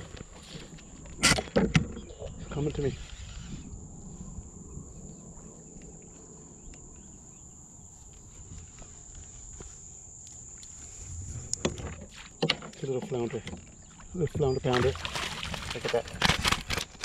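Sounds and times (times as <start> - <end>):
wind and water rumble: 0.0 - 9.2, 9.9 - 17.0
steady high-pitched whine: 2.0 - 13.8.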